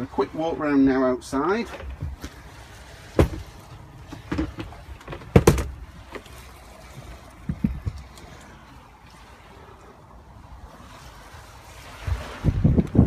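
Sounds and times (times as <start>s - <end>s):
knocks and thumps in van body: 3.2s - 3.5s, 4.2s - 5.8s.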